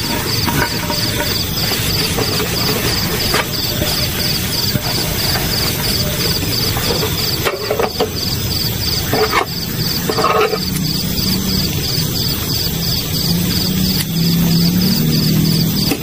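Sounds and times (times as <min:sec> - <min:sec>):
metal pan and utensils clinking: 0:00.0 - 0:10.8
night insects chirping: 0:00.0 - 0:16.0
outdoor background noise: 0:00.0 - 0:16.0.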